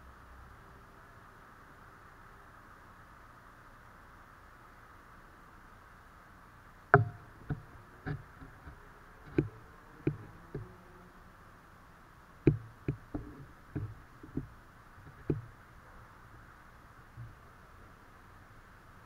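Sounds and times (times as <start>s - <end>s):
faint hiss: 0.0s - 19.0s
sharp clicks and taps: 12.5s - 15.5s.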